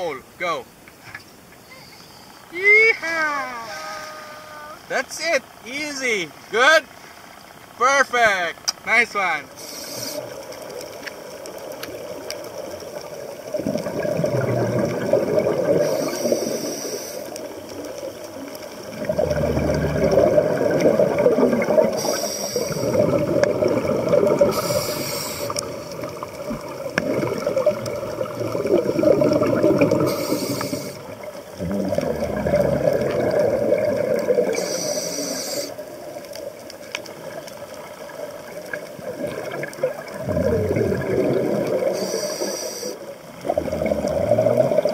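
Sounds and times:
regulator hiss: 0.0 - 10.8, 14.5 - 26.9, 29.8 - 31.6, 34.2 - 36.2, 41.7 - 43.4
bubbling exhaled air underwater: 9.7 - 44.9.

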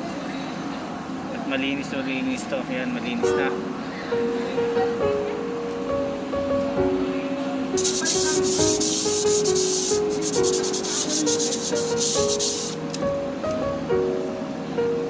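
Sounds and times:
hand sanding metal: 7.8 - 12.8
background music: 7.8 - 15.0.

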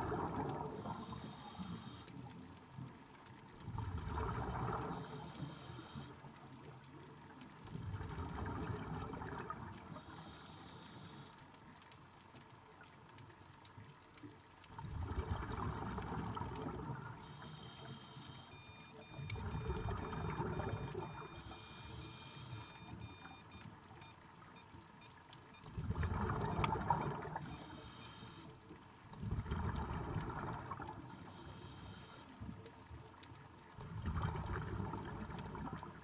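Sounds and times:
underwater exhaled bubbles gurgling: 0.0 - 2.8, 3.6 - 10.5, 14.6 - 17.9, 19.1 - 21.6, 25.6 - 28.0, 28.6 - 31.6, 32.3 - 36.0.

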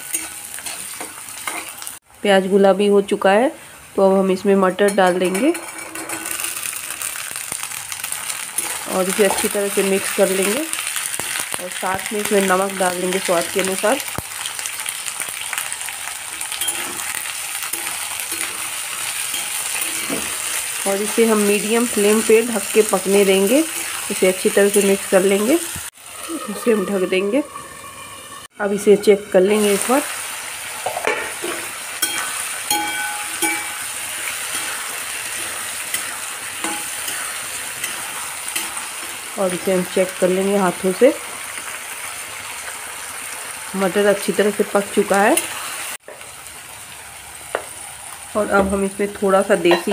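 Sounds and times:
metal spatula scraping pan: 0.0 - 1.8, 4.8 - 6.7, 16.4 - 20.8, 26.1 - 30.0, 30.8 - 39.2
vegetables sizzling in oil: 0.0 - 49.9.

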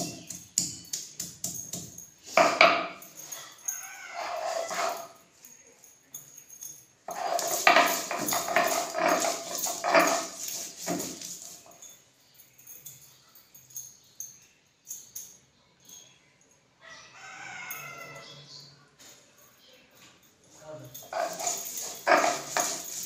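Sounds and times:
stone scraping over stone: 4.1 - 5.1, 7.1 - 11.6, 21.0 - 23.0.

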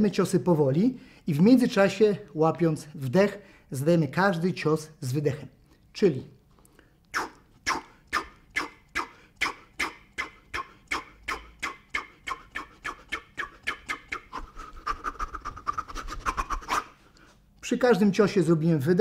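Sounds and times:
sharp breath exhalations: 9.0 - 9.7.

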